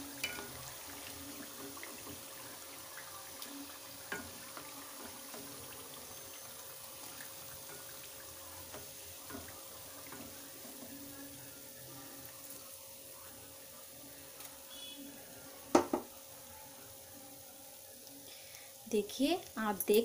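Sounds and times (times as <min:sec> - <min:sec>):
hot oil sizzling in a pan: 0:00.0 - 0:20.0
utensils clicking against pan: 0:00.2 - 0:00.6.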